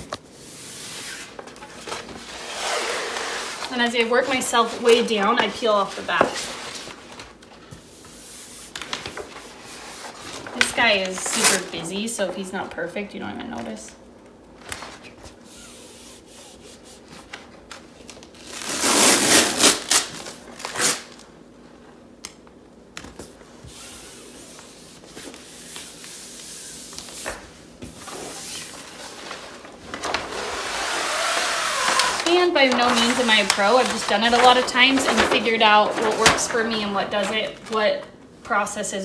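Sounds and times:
paper sheet rustling: 0.5s - 11.9s, 28.0s - 38.0s
hands rubbing wallpaper: 15.3s - 17.4s.

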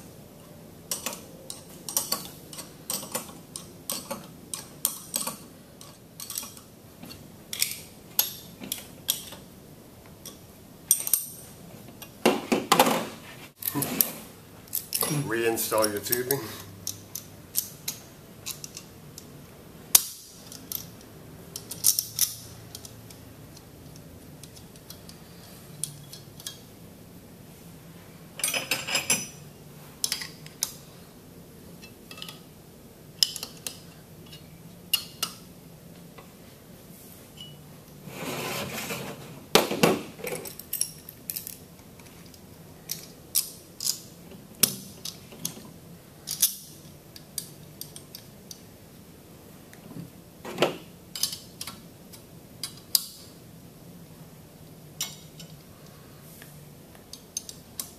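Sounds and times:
metal clicks and clinks: 0.9s - 6.7s
metal scraping rubs: 38.0s - 39.4s.

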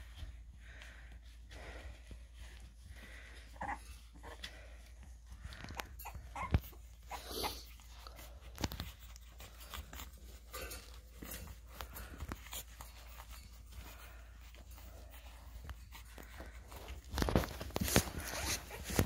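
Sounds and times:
puppies scuffling and clicking: 0.0s - 19.0s.

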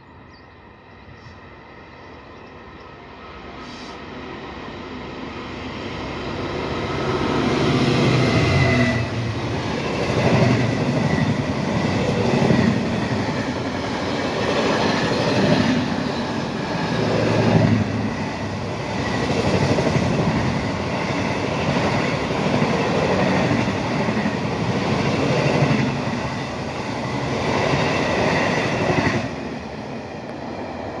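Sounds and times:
diesel locomotive engine: 0.0s - 31.0s
train wagons rumbling and clattering: 6.6s - 31.0s.

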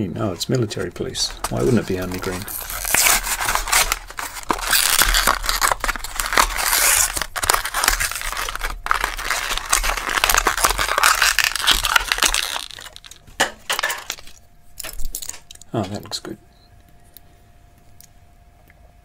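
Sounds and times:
cardboard and plastic tearing: 0.8s - 14.4s.

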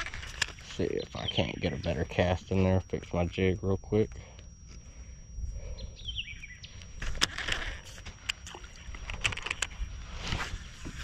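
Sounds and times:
sleeve brushing over microphone: 10.0s - 11.0s.

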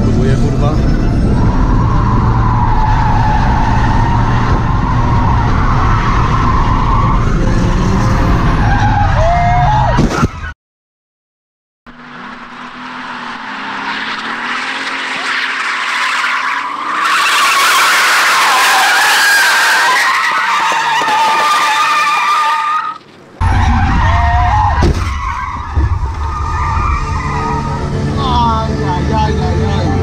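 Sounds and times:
car engine revving: 0.0s - 9.2s, 11.9s - 19.9s, 23.1s - 30.0s
engine and tyre rumble: 0.0s - 10.6s, 11.9s - 30.0s
tyres squealing: 13.4s - 28.2s.

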